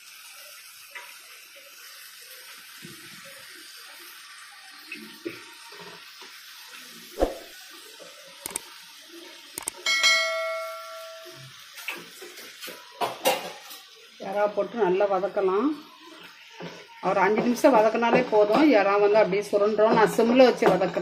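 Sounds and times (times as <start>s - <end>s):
prawns sizzling in a frying pan: 0.0s - 21.0s
metal vessel ringing: 9.8s - 11.5s.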